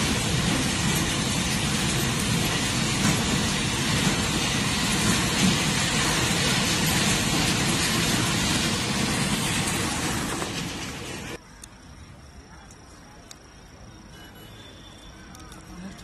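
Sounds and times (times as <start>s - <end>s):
steel wheels rushing on rail: 0.0s - 11.4s.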